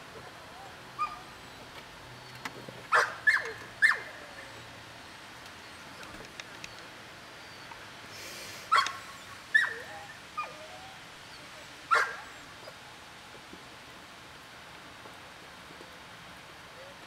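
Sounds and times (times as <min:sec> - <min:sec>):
dog barking: 0:02.9 - 0:04.1, 0:08.7 - 0:09.0, 0:11.9 - 0:12.3.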